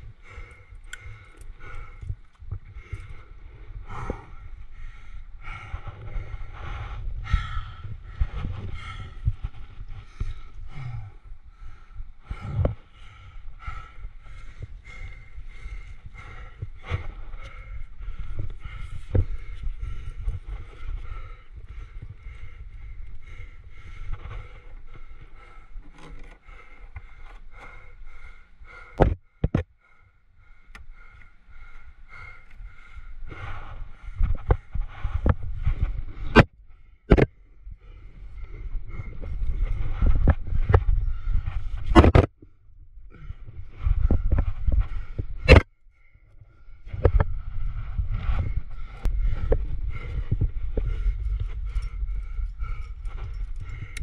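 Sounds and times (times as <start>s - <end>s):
person breathing hard: 0.0s - 54.0s
wind on microphone: 1.7s - 24.8s, 33.3s - 45.7s, 46.4s - 54.0s.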